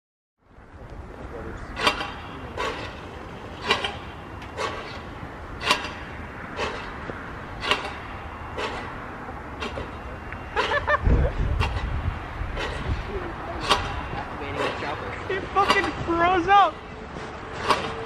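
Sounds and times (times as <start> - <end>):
siren dampers clicking: 1.7 - 10.8.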